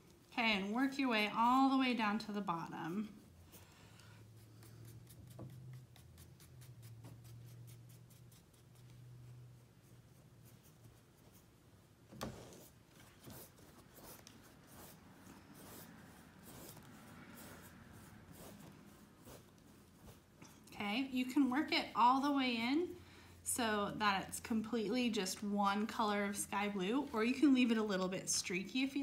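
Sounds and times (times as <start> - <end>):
paintbrush on canvas: 0.0 - 20.8.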